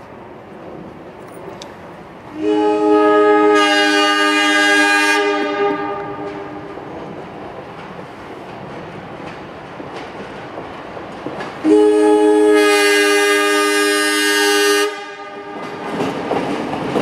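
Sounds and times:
train rumble: 0.0 - 17.0
train air horn blast: 2.3 - 6.8, 11.6 - 15.8.

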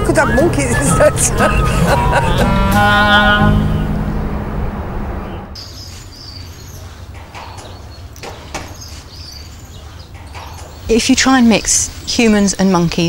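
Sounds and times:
high chirping calls: 0.0 - 2.6, 5.2 - 13.0
steady low rumble: 0.0 - 5.6.

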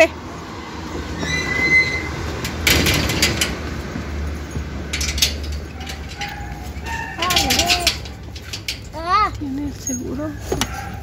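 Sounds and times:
high squeak: 1.2 - 2.2
clattering: 2.3 - 9.0.

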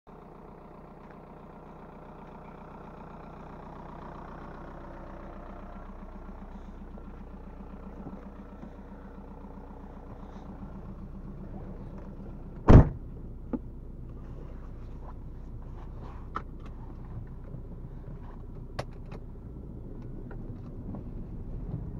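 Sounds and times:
diesel engine idling: 0.1 - 21.9
car door slamming: 12.6 - 13.1.

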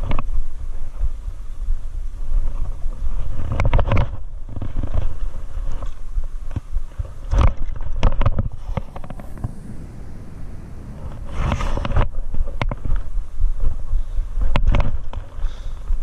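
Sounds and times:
wind rumble on microphone: 7.5 - 14.8.

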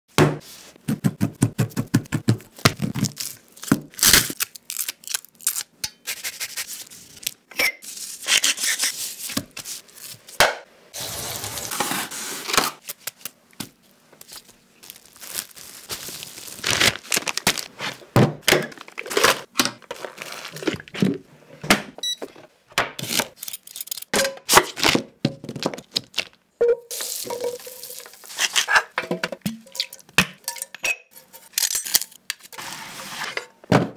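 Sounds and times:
plastic wrap crinkling and tearing: 2.7 - 5.7, 14.2 - 18.0, 18.7 - 21.0, 27.0 - 28.8
pepper mill grinding: 26.9 - 28.8.

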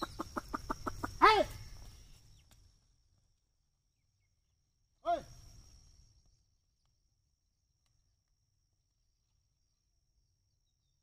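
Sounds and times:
man calling: 1.0 - 1.7, 5.0 - 5.4.

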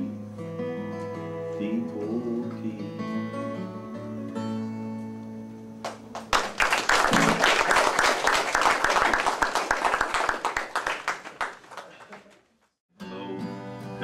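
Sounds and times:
audience applauding: 5.8 - 12.6.

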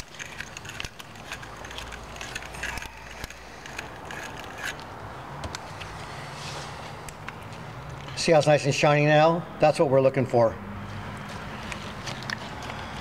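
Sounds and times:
metal tool scraping in clamp: 0.0 - 4.9.

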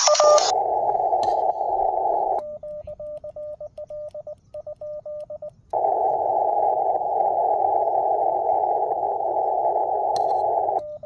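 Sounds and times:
radio static hiss: 0.0 - 3.2, 5.7 - 11.0
morse code beeps: 0.0 - 11.0.

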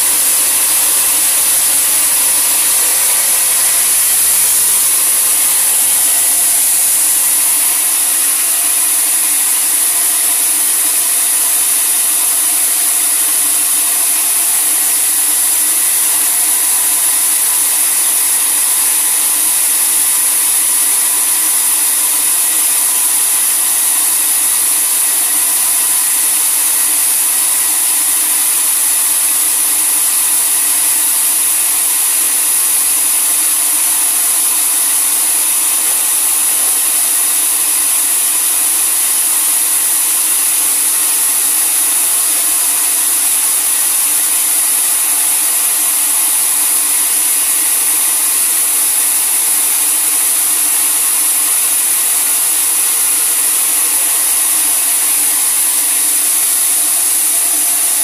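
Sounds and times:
faint steady hum: 0.0 - 48.7
sawmill saw running: 0.0 - 58.0.

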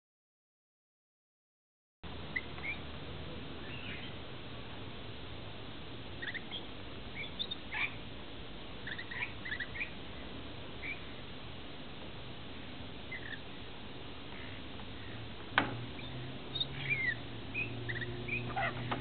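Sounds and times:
lorikeets chirping softly: 2.1 - 4.4, 6.1 - 8.1, 8.7 - 11.4, 12.6 - 13.7, 14.3 - 19.0
steady background hiss: 2.1 - 19.0.

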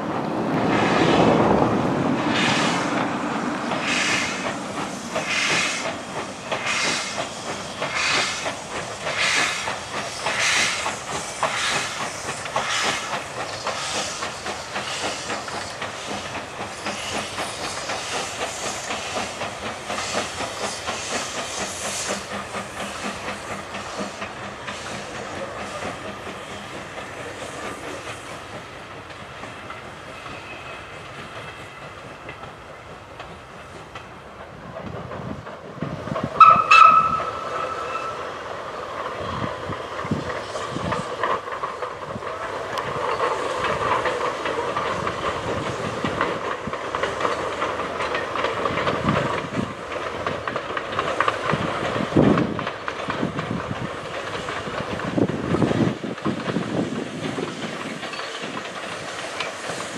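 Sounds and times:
train whistle blast: 36.4 - 38.3.

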